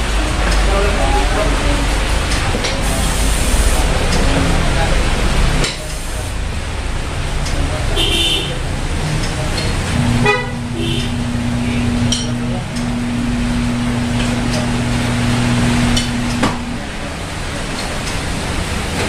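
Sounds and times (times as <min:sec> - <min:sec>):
electric turntable motor humming: 0:09.8 - 0:18.5.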